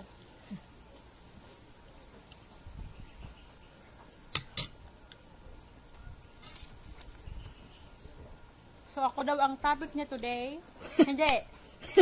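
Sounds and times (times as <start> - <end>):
sharp clicks: 4.3 - 5.2.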